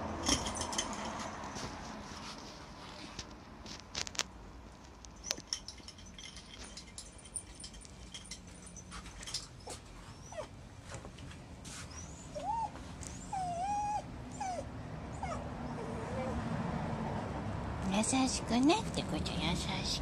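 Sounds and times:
paws clicking on tiled floor: 0.5 - 14.6
dog whining: 9.6 - 10.6, 11.9 - 16.4.

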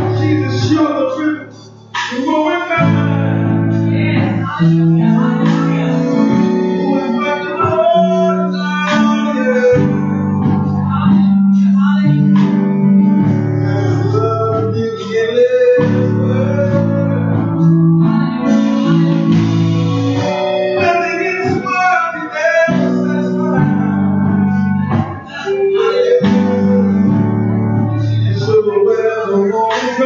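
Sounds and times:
person singing: 0.0 - 30.0
worship band playing: 0.0 - 30.0
drum hits: 1.5 - 3.2, 18.5 - 22.0.

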